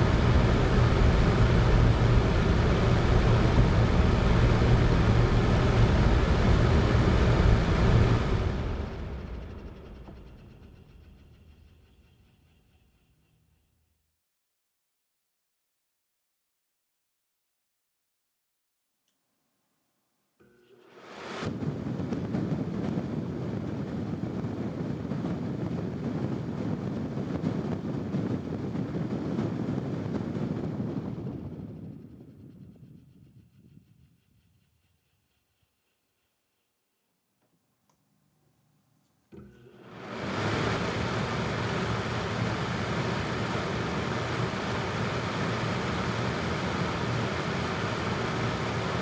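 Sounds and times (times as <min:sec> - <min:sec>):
fan wind noise on microphone: 0:00.0 - 0:12.2, 0:20.6 - 0:36.7, 0:39.3 - 0:49.0.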